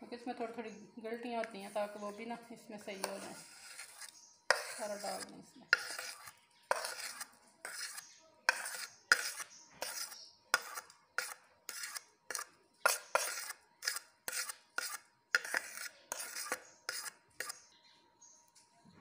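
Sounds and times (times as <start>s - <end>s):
spoon scraping a ceramic plate: 2.8s - 17.7s.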